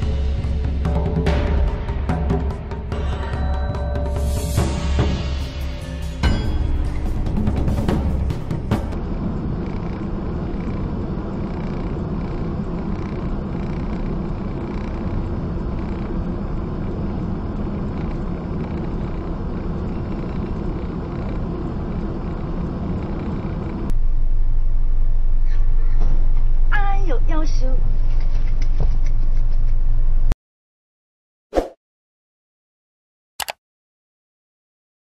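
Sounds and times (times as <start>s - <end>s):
steady low hum: 0.0s - 30.4s
traffic engine and road noise: 7.4s - 30.3s.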